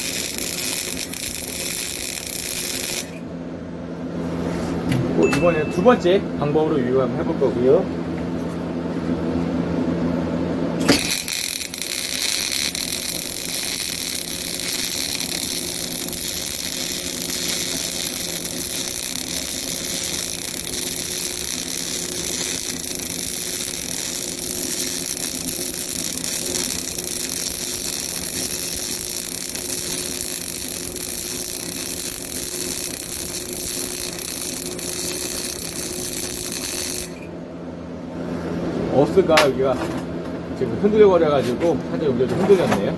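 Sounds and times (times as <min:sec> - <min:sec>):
welding arc hissing and crackling: 0:00.0 - 0:03.2, 0:10.8 - 0:37.3.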